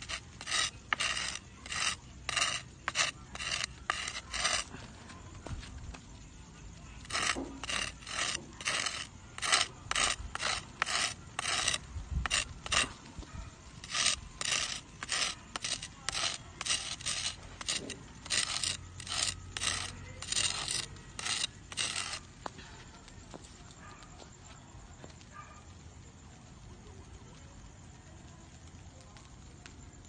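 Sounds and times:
rasping scrapes on ash: 0:00.0 - 0:06.0, 0:06.8 - 0:13.1, 0:13.7 - 0:22.3.

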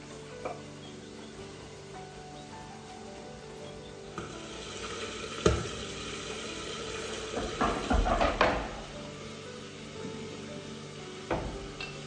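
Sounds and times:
cutting boards knocking on countertop: 0:07.4 - 0:08.8, 0:11.3 - 0:11.7.

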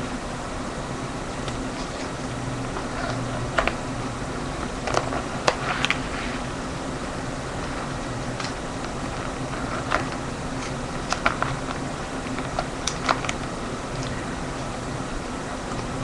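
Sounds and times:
low hum: 0:00.0 - 0:16.0
plastic pages crinkling and clicking: 0:04.8 - 0:06.1, 0:07.6 - 0:14.2.

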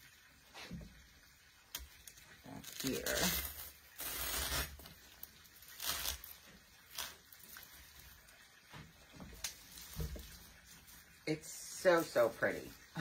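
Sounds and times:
branches rustling: 0:02.0 - 0:13.0.

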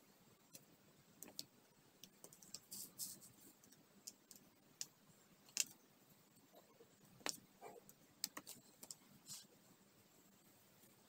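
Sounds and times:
small plastic clicks and ticks: 0:00.5 - 0:02.7, 0:03.6 - 0:05.8, 0:07.2 - 0:09.0.

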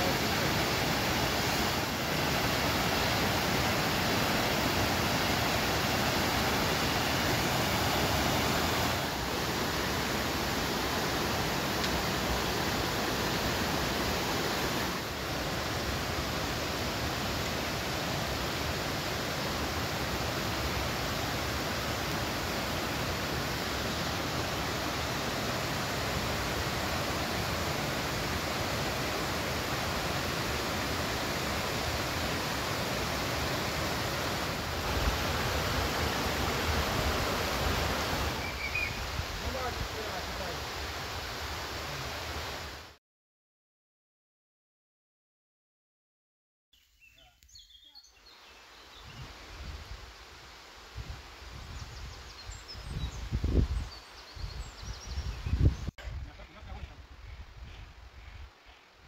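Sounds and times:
stream rushing over rocks: 0:00.0 - 0:43.0.

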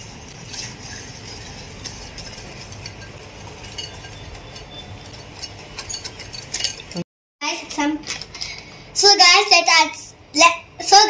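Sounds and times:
whisk clinking in glass bowl: 0:00.3 - 0:07.0.

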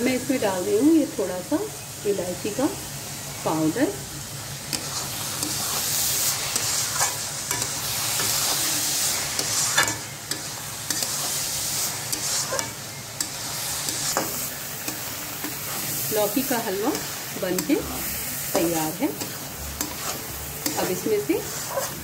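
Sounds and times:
food sizzling in ghee: 0:00.0 - 0:22.0
spatula scraping metal pan: 0:04.8 - 0:15.9, 0:18.6 - 0:22.0.

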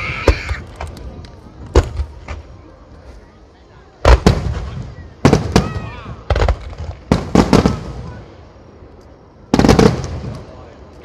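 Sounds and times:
fireworks booming: 0:00.0 - 0:02.6, 0:04.0 - 0:08.6, 0:09.4 - 0:10.9.

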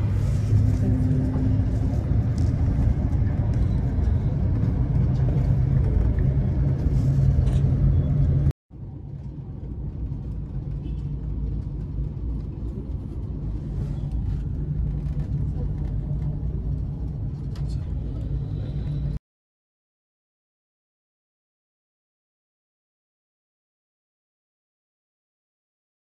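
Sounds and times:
cable car rumble: 0:00.0 - 0:19.2.

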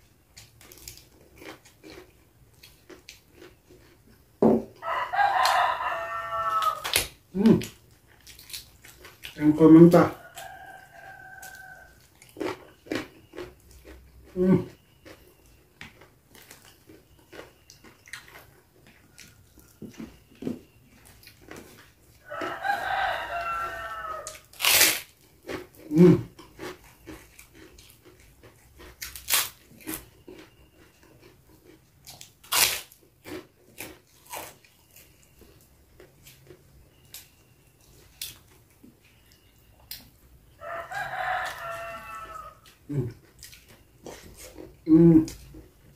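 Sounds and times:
chewing and crunching food: 0:00.0 - 0:45.9
rooster crowing: 0:04.8 - 0:07.0, 0:10.0 - 0:12.1, 0:22.2 - 0:24.6, 0:40.5 - 0:43.0.

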